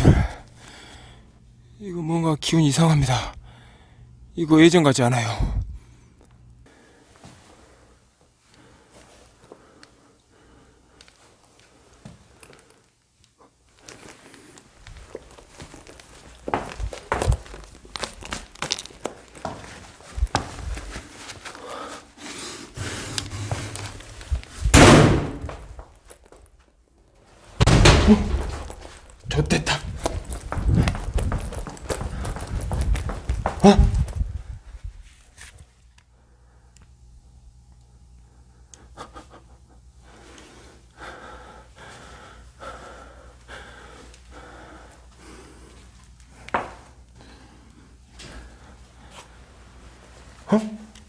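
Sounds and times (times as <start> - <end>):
person breathing heavily: 0.0 - 1.6, 3.4 - 4.3, 5.4 - 12.8, 20.8 - 24.5, 38.3 - 49.6
footsteps on carpet: 14.8 - 22.0, 22.9 - 24.6, 29.8 - 35.6
sudden loud bang: 24.7 - 25.6, 27.6 - 28.7.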